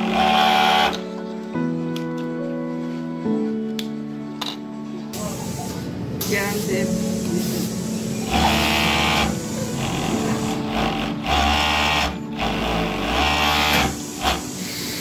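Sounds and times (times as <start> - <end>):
overlock machine running: 0.0 - 1.0, 7.7 - 15.0.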